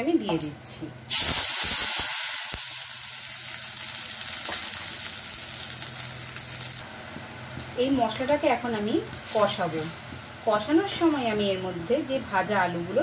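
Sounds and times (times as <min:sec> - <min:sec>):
paste sizzling in hot oil: 0:01.1 - 0:06.8.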